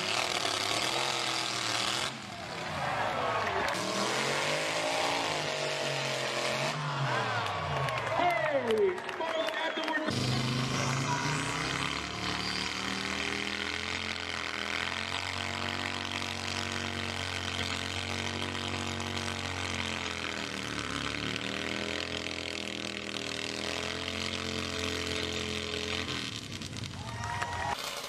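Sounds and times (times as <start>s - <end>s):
chainsaw cutting log: 0.0s - 2.3s, 3.7s - 6.8s, 10.1s - 26.6s, 27.8s - 28.0s.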